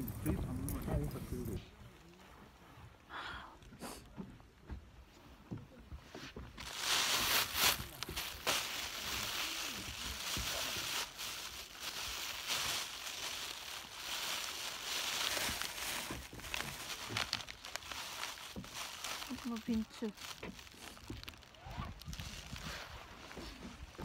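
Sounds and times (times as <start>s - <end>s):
plastic bag crinkling: 6.6s - 23.3s.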